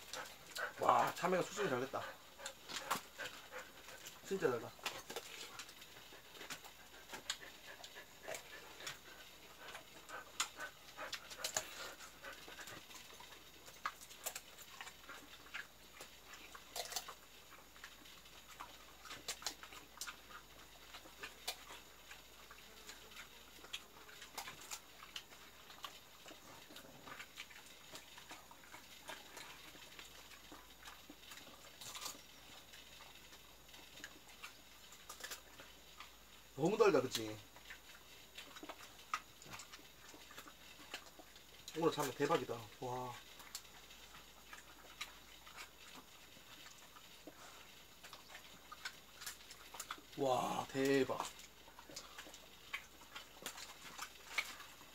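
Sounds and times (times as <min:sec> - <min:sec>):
dog panting: 0:00.0 - 0:16.5
dogs chewing and lip-smacking: 0:00.0 - 0:54.9.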